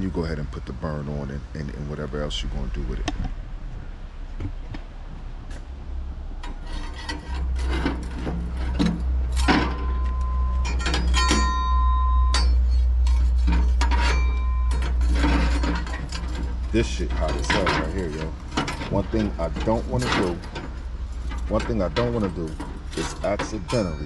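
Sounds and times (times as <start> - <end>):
scraping on a charcoal grill: 6.2 - 24.0.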